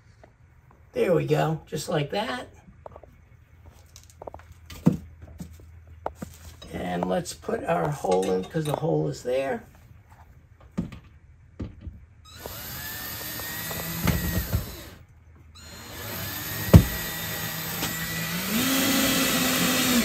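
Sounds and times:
cordless drill running: 12.3 - 15.0, 15.6 - 20.0.

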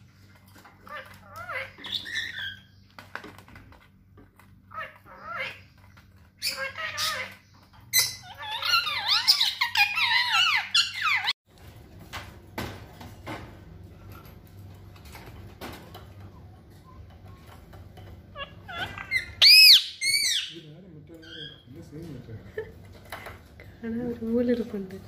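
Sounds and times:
parrot chattering: 0.8 - 2.7, 4.7 - 5.7, 6.4 - 11.3, 18.3 - 21.7
shrill parrot calls: 4.7 - 5.7, 6.4 - 7.4, 8.0 - 11.4, 18.3 - 20.6.

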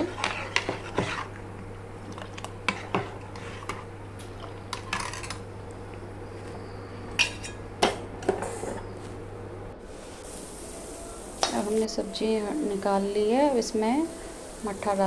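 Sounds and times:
spoon whisking batter: 0.0 - 1.4, 2.1 - 3.9.

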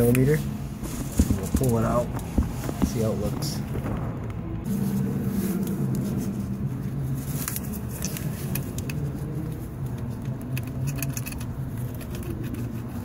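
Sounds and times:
steady low hum: 0.0 - 13.0
socket wrench clicking: 10.3 - 13.0.

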